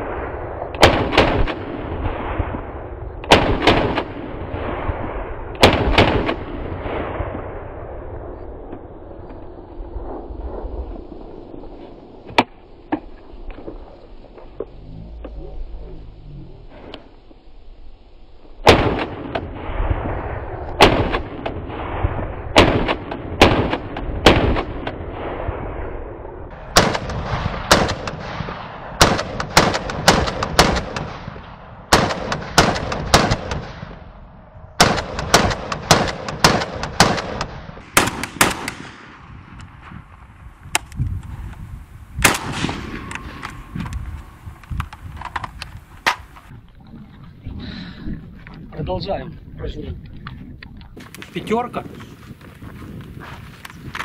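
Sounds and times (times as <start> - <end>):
rifle shots with ringing echo: 0.0 - 8.3, 18.6 - 34.2, 34.8 - 40.9, 42.2 - 44.6.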